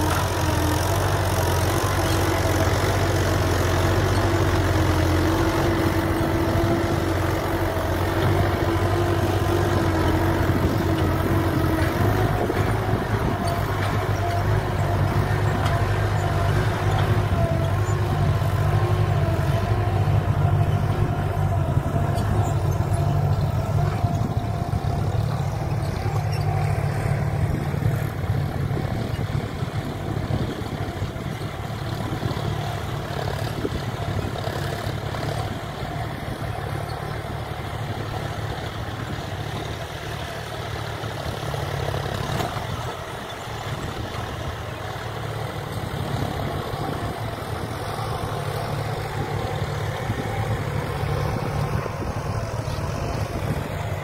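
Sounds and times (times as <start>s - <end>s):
diesel tractor engine under load: 0.0s - 54.0s.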